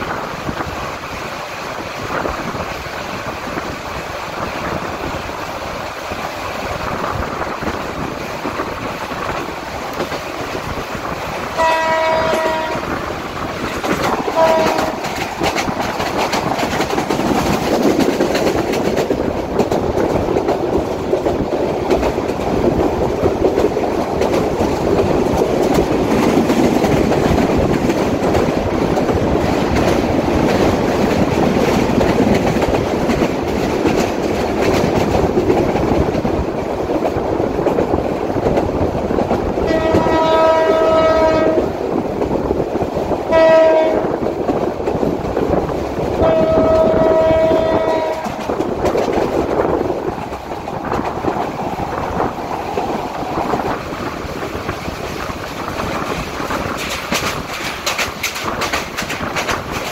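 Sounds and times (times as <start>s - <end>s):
train rumbling on track: 0.0s - 59.9s
train horn: 11.6s - 13.0s, 14.3s - 15.2s, 39.7s - 41.7s, 43.3s - 44.2s, 46.2s - 48.6s.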